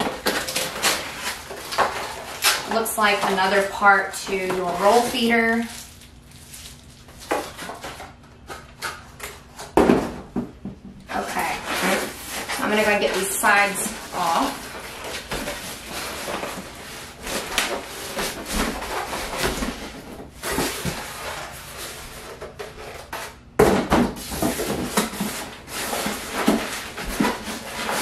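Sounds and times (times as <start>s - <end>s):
foam rubbing and scraping: 11.2s - 19.4s.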